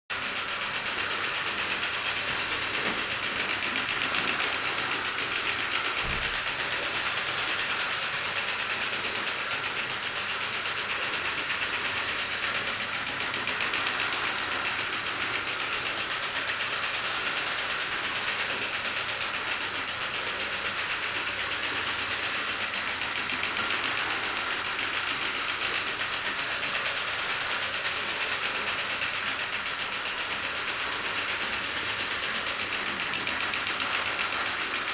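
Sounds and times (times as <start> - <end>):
fast steam exhaust beats: 0.1 - 34.9
steam hissing: 0.1 - 34.9.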